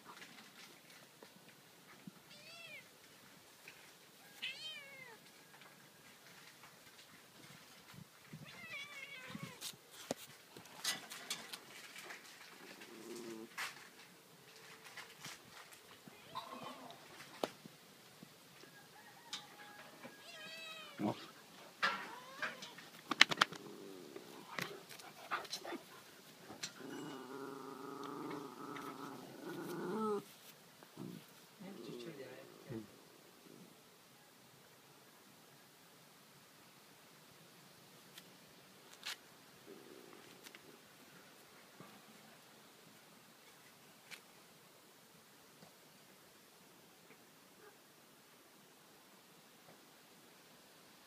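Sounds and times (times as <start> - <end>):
cat meowing: 2.3 - 2.8, 4.4 - 5.2, 8.4 - 9.6, 20.2 - 21.2, 22.0 - 22.8
animal growling: 23.5 - 24.6, 26.7 - 30.3.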